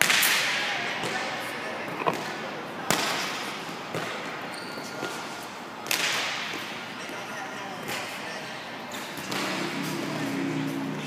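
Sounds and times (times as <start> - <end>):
volleyballs thudding: 0.0 - 4.4.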